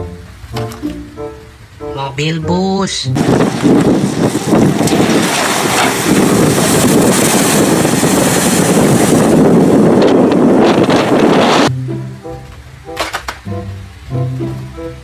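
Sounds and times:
water rushing and splashing: 0:00.0 - 0:15.0
wind buffeting microphone: 0:03.1 - 0:11.8.

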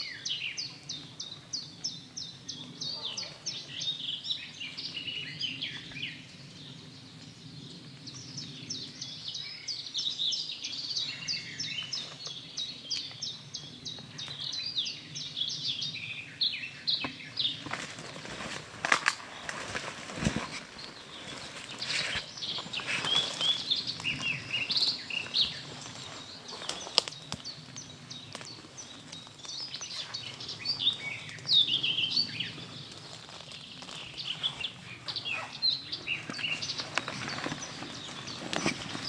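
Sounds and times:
songbirds chirping and singing: 0:00.0 - 0:39.0
rustling through undergrowth: 0:16.7 - 0:39.0.

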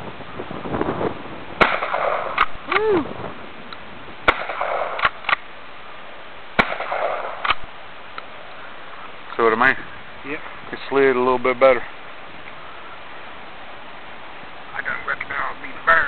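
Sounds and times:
gunshots with echo: 0:01.6 - 0:02.5, 0:04.3 - 0:05.2, 0:06.6 - 0:07.6
sharp clicks: 0:04.4 - 0:05.4.

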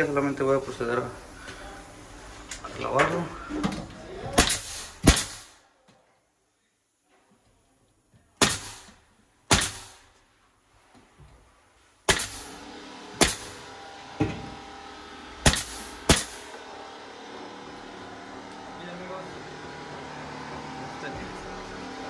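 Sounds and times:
nail gun firing: 0:04.4 - 0:05.6, 0:08.4 - 0:10.0, 0:12.1 - 0:12.6, 0:13.2 - 0:13.6, 0:15.4 - 0:16.5.

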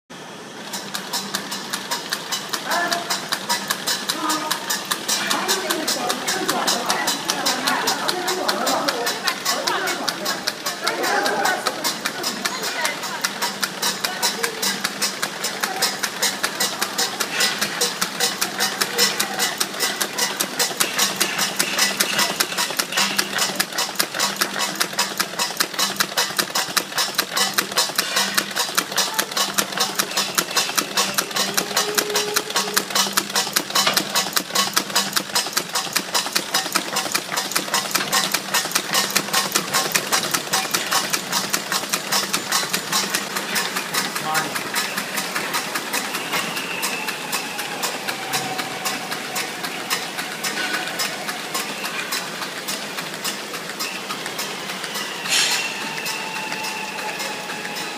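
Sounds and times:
folder gluer machine clattering: 0:00.6 - 0:57.9.

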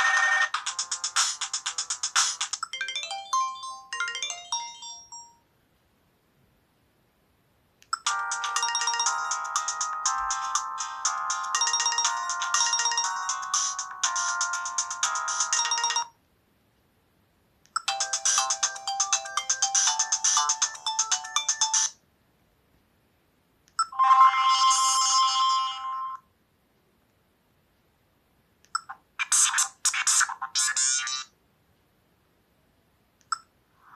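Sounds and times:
phone ringtone melodies: 0:00.0 - 0:05.4, 0:08.0 - 0:16.2, 0:17.8 - 0:22.0, 0:23.8 - 0:26.2.

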